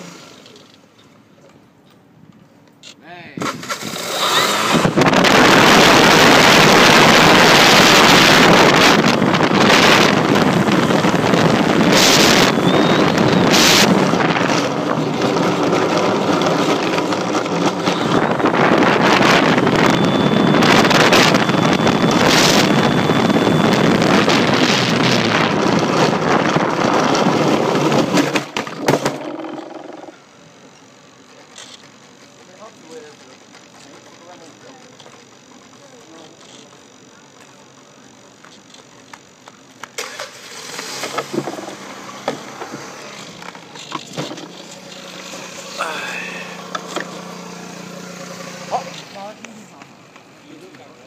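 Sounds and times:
model plane propeller rushing: 3.4 - 30.2.

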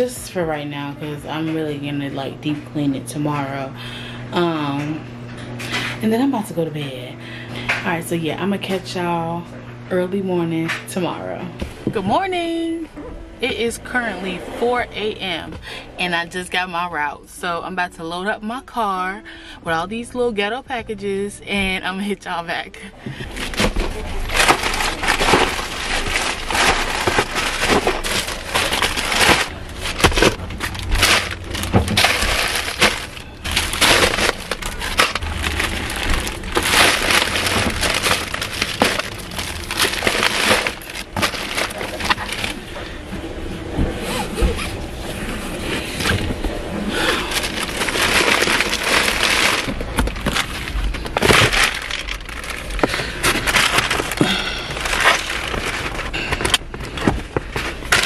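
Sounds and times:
packages knocking: 23.1 - 42.6, 46.1 - 58.0
packages rustling and crinkling: 23.1 - 43.2, 43.9 - 58.0.

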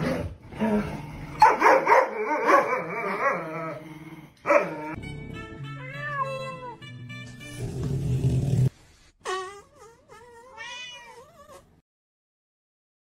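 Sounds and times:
dog barking and yipping: 1.4 - 3.4, 4.4 - 4.9.

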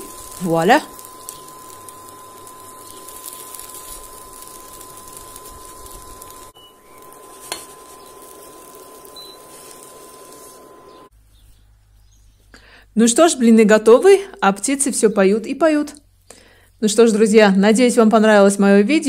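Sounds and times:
crepe sizzling in a pan: 0.0 - 11.1.

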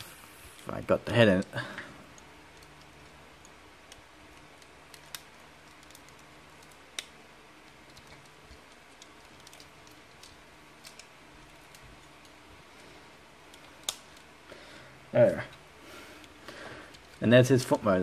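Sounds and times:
plastic toy parts clicking: 2.2 - 7.1, 7.9 - 12.4.

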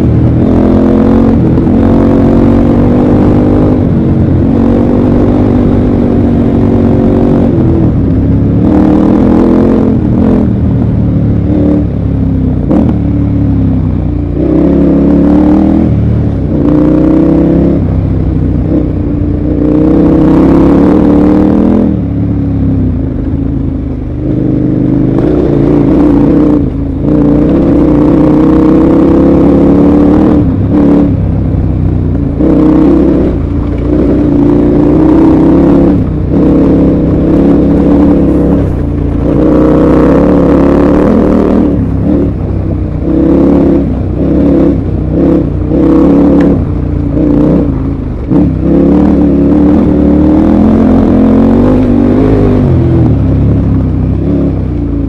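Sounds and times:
motorcycle engine revving: 0.0 - 55.0
gravel clicking under tyres: 30.5 - 50.2.

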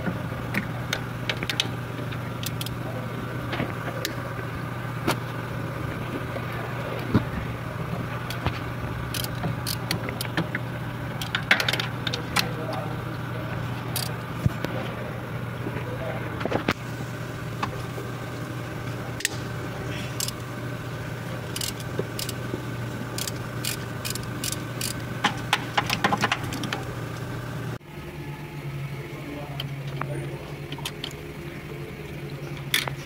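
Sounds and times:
steady low hum: 0.0 - 33.0
hand tools and plastic parts clicking: 2.4 - 2.8, 9.1 - 10.6, 13.9 - 14.1, 20.2 - 20.4, 21.5 - 22.4, 23.1 - 26.9.

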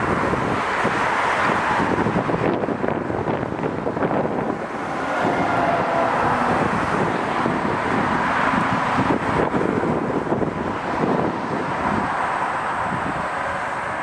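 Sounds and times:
distant road traffic: 0.0 - 14.0
wind on microphone: 0.0 - 14.0
distant train approaching: 4.6 - 7.4.

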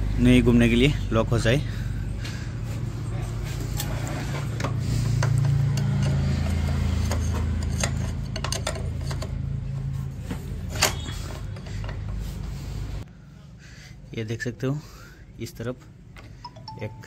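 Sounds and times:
hand tools clicking on metal: 4.6 - 9.4.

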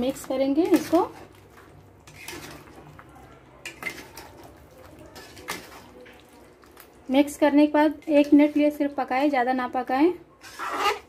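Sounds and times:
metal spatula scraping a pan: 2.0 - 2.9, 3.6 - 6.2, 7.8 - 9.5, 10.4 - 11.0.

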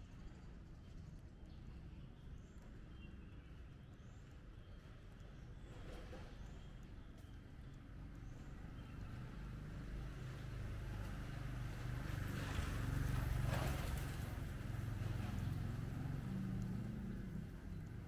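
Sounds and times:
motorcycle engine passing: 10.4 - 18.0.

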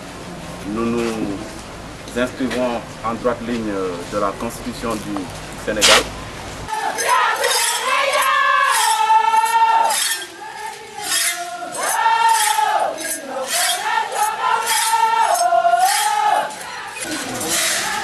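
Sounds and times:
voices singing a chant: 6.7 - 18.0.

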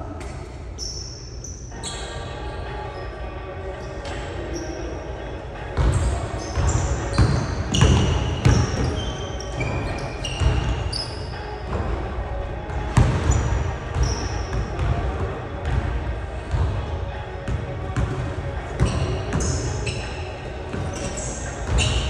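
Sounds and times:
sneakers squeaking on court: 0.2 - 3.2, 5.6 - 12.1, 12.7 - 15.8, 17.3 - 22.0
basketball bouncing on wooden floor: 13.0 - 15.0.

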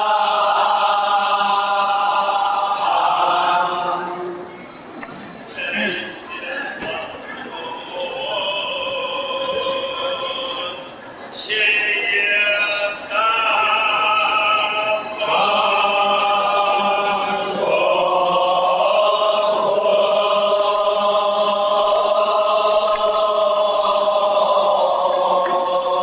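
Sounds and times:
voices chanting long notes: 0.0 - 4.5, 11.9 - 26.0.

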